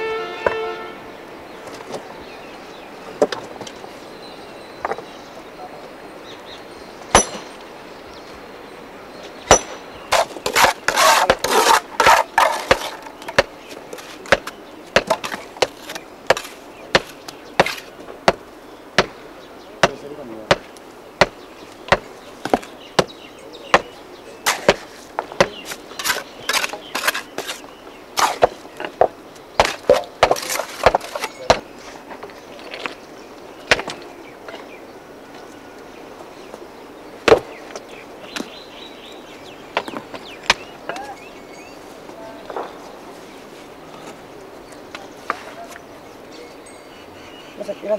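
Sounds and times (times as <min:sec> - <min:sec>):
hammer cracking stone: 0:07.1 - 0:07.5, 0:09.5 - 0:13.5, 0:29.6 - 0:31.6.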